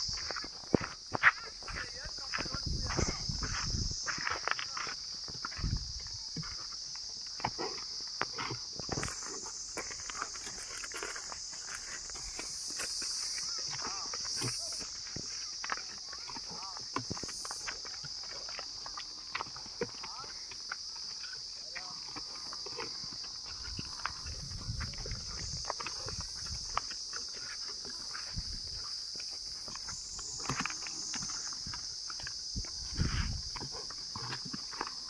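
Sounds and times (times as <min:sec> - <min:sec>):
high insect drone: 0:00.0 - 0:35.0
hoof clops and scuffs: 0:00.0 - 0:35.0.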